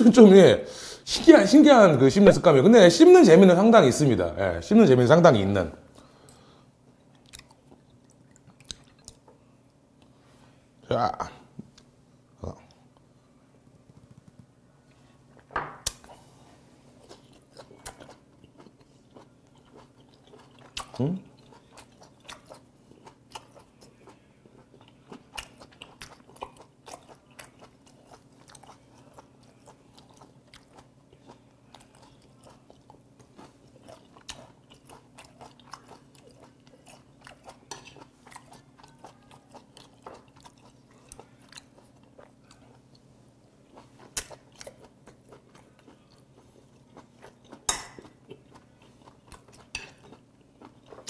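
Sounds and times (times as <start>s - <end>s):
faint steady low hum: 0.0s - 51.0s
wet chewing clicks and squelches: 7.1s - 9.2s, 17.0s - 43.0s.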